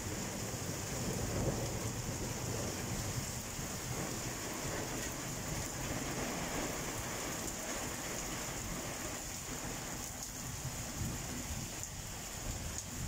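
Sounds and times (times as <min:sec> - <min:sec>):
heavy rain splashing: 0:00.0 - 0:13.0.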